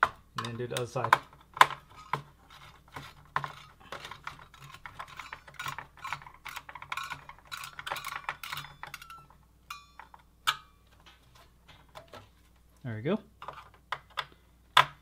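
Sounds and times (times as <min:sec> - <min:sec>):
screwdriver clicking on metal screws: 0:00.4 - 0:09.4
faint metallic ring: 0:08.4 - 0:10.9.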